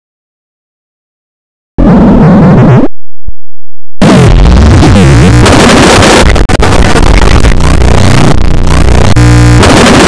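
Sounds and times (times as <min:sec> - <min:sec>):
distorted warbling digital noise: 0:04.0 - 0:10.0.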